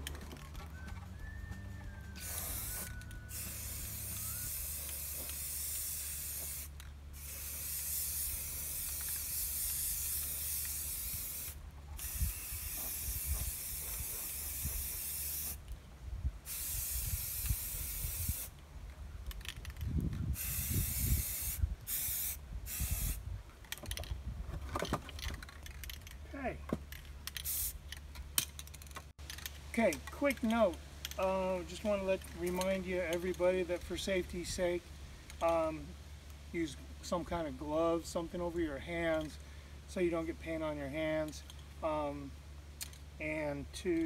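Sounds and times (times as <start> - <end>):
dull low thumps: 0.0 - 3.3
spray paint can hissing: 2.2 - 15.7, 16.4 - 18.6, 20.3 - 23.2, 27.3 - 27.9.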